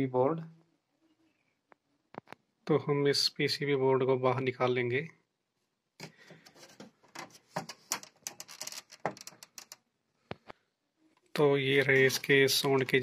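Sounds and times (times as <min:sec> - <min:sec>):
plastic and wire clicks and rattles: 0:06.0 - 0:10.6.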